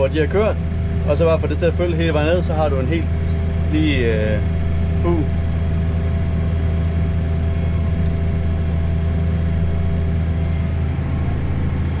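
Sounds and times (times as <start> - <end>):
tractor engine drone: 0.0 - 12.0.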